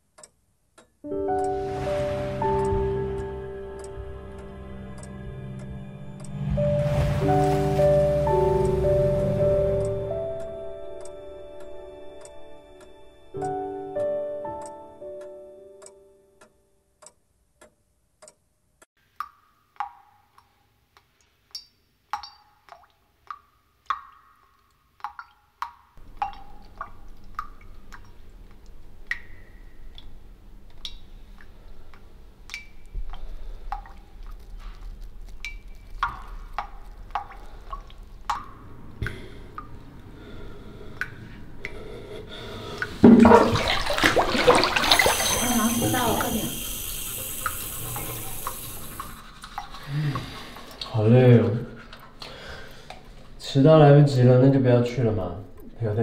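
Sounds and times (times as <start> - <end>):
water drops plinking: 1.1 - 5.6, 6.2 - 11.2, 21.6 - 24.4, 25.0 - 31.5, 32.5 - 34.4, 35.3 - 40.3, 41.0 - 49.2
rush of water: 1.6 - 3.0, 6.7 - 9.3, 42.8 - 50.8.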